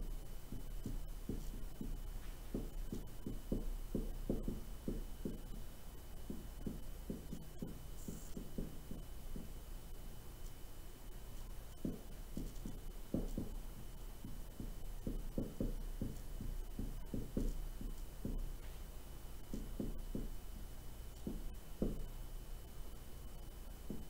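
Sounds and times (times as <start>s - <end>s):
marker squeaking on whiteboard: 0.0s - 9.6s, 11.7s - 18.6s.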